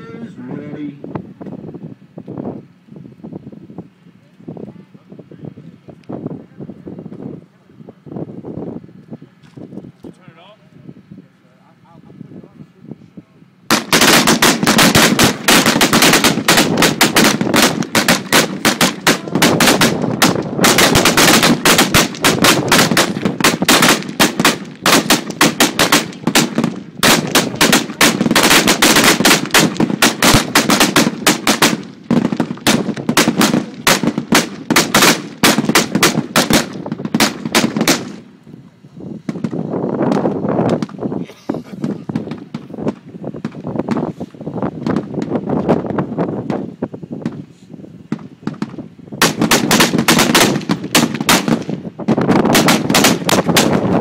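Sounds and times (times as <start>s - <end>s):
rapid overlapping gunfire: 13.7s - 38.2s, 48.5s - 54.0s.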